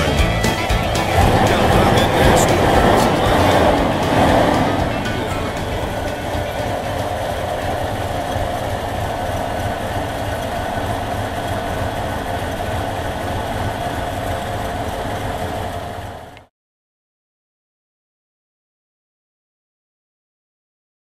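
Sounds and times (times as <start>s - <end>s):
pickup engine idling: 0.0s - 16.5s.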